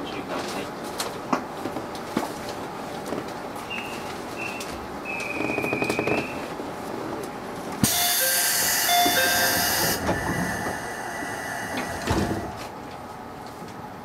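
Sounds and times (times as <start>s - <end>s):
two-note door chime: 7.8s - 10.0s
compressed-air hiss: 7.8s - 12.6s.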